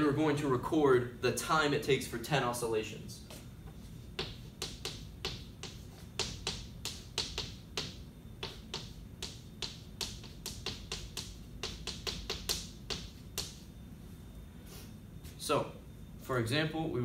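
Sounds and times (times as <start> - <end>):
chalk writing on blackboard: 4.2 - 13.7.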